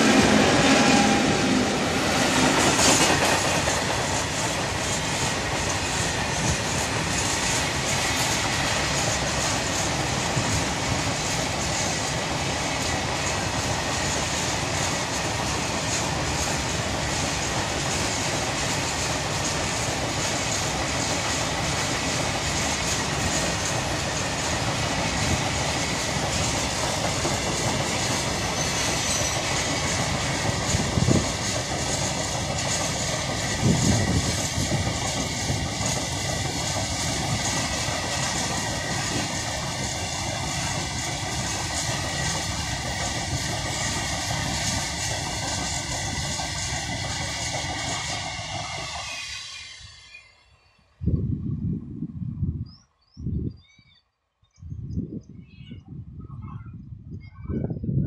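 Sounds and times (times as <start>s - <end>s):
train wheels running on rails: 0.0s - 52.1s.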